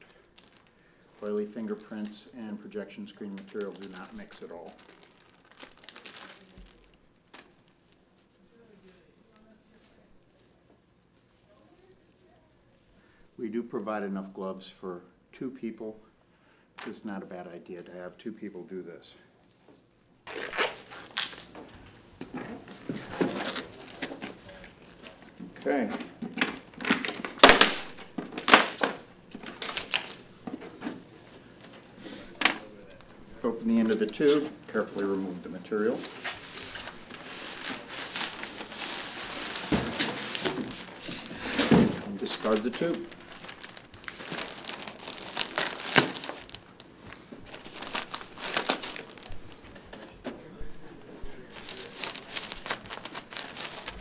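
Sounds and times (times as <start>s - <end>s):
paper crinkling: 0.0s - 10.5s, 20.2s - 50.0s, 51.4s - 54.0s
masking tape peeling and tearing: 20.3s - 21.5s, 26.4s - 30.2s, 36.0s - 46.6s.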